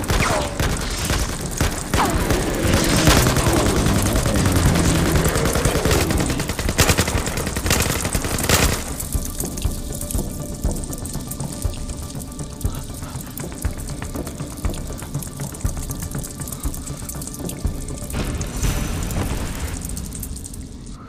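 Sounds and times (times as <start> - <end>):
automatic gunfire: 0.0 - 9.1.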